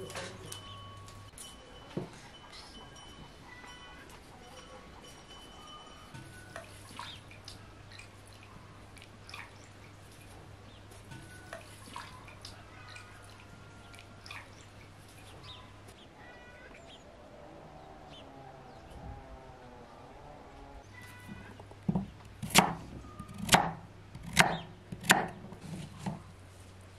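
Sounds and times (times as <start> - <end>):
water splashing and dripping: 6.2 - 17.0.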